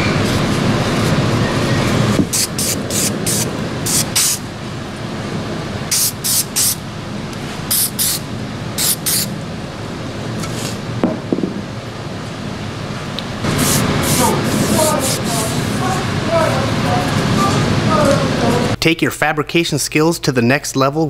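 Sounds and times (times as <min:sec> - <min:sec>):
spray can hissing bursts: 0:02.3 - 0:04.4, 0:05.9 - 0:06.8, 0:07.7 - 0:08.2, 0:08.8 - 0:09.3, 0:13.5 - 0:15.9.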